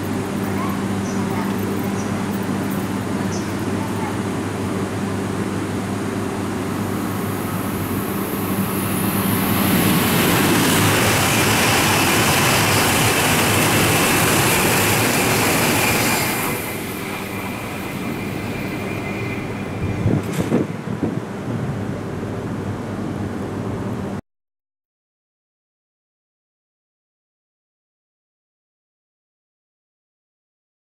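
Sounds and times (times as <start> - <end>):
train passing at high speed: 0.0 - 24.2.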